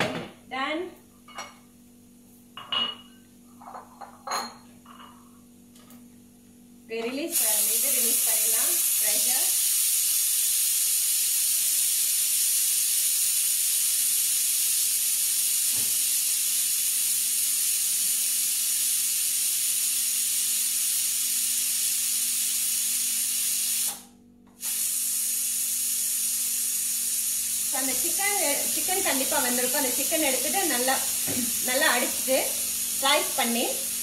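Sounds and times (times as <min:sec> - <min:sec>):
pressure cooker steam hiss: 0:07.3 - 0:34.0.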